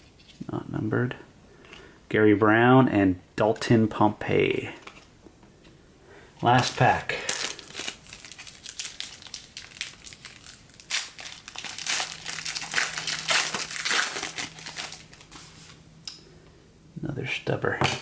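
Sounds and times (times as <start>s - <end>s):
foil wrapper crinkling: 6.6s - 15.8s.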